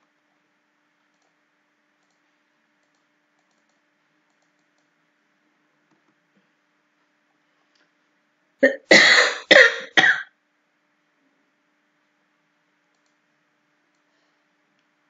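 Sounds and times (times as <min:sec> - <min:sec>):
faint steady hum: 0:00.0 - 0:15.0
computer mouse and keyboard clicks: 0:01.0 - 0:01.4, 0:02.0 - 0:05.0, 0:05.8 - 0:06.2, 0:12.9 - 0:13.2.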